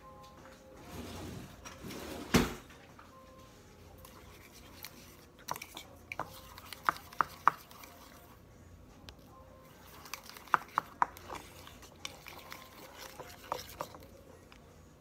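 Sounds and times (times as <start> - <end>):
fork tapping plastic bowl: 5.5 - 7.9, 10.0 - 14.0.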